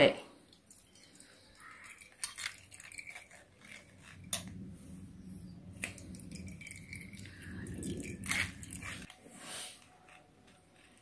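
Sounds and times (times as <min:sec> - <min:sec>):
spoon scraping metal strainer: 0:01.1 - 0:04.6, 0:05.8 - 0:11.0
low hum: 0:02.6 - 0:09.1.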